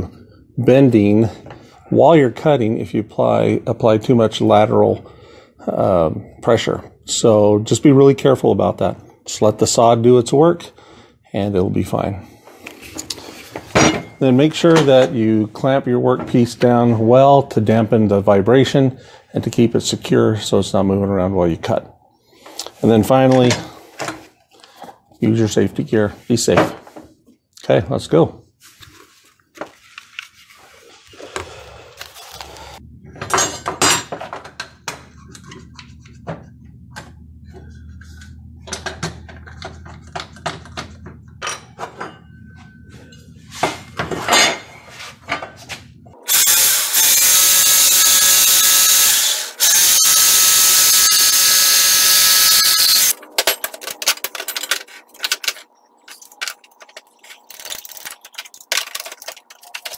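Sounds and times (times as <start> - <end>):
jigsaw cutting wood: 46.3 - 53.1
clicks and knocks of tools: 53.1 - 59.9.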